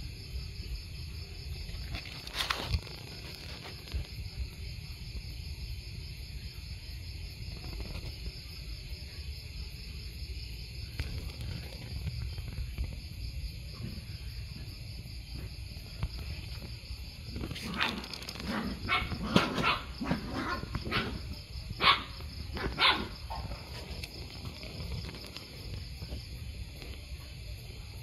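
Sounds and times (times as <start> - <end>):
night insects chirring: 0.0 - 28.0
dog barking: 17.7 - 23.5.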